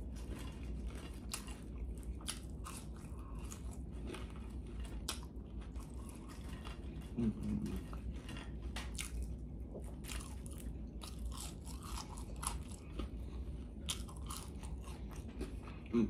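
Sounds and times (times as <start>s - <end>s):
person chewing crunchy food: 0.0s - 16.0s
closed-mouth hum: 5.1s - 11.0s, 14.6s - 16.0s.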